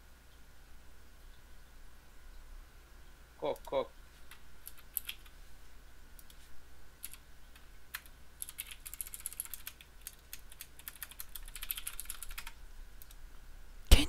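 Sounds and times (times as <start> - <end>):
typing on a keyboard: 3.5 - 5.3, 7.0 - 13.2.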